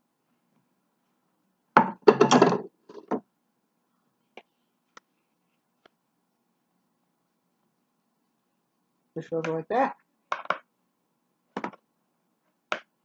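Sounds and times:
frying pan clattering on table: 1.8s - 3.2s.

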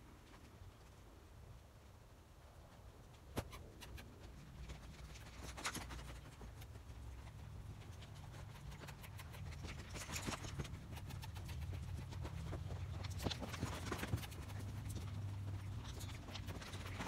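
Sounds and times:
hoofbeats on sand: 9.7s - 17.0s.

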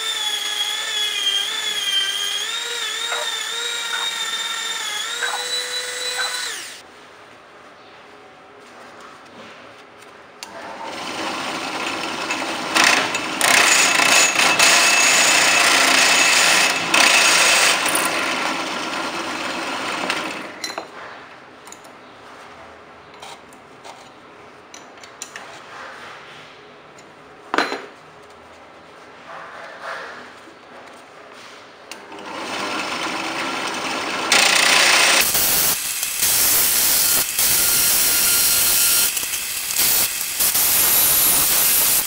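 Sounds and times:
power tool running: 0.0s - 6.8s, 10.7s - 20.6s, 32.0s - 42.0s.

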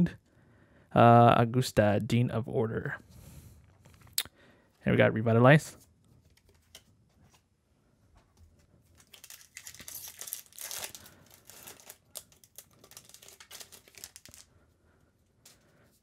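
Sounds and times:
foil wrapper tearing and crinkling: 9.0s - 14.5s.

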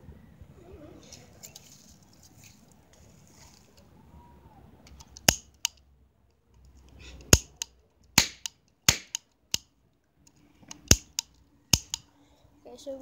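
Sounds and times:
cap gun cracks: 4.9s - 5.8s, 7.2s - 9.7s, 10.7s - 12.0s.

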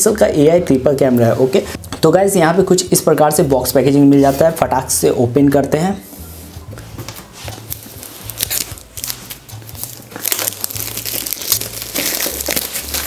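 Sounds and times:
plastic film crinkling: 7.4s - 13.0s.

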